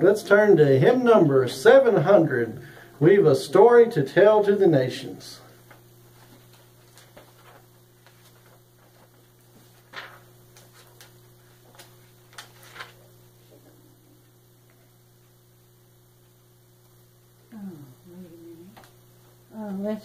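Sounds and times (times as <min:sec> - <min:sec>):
electrical mains hum: 0:00.0 - 0:20.0
paper pages flicking and rustling: 0:05.6 - 0:13.2.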